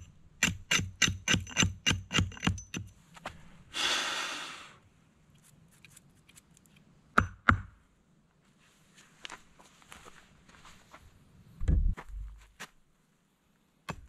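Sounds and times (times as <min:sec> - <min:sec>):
man exhaling heavily: 0:03.7 - 0:04.8.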